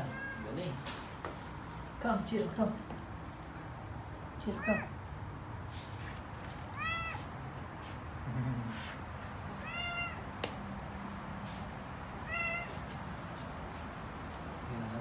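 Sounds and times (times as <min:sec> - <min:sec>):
cat meowing: 0:00.0 - 0:00.6, 0:04.6 - 0:04.9, 0:06.8 - 0:07.3, 0:09.6 - 0:10.3, 0:12.2 - 0:12.8.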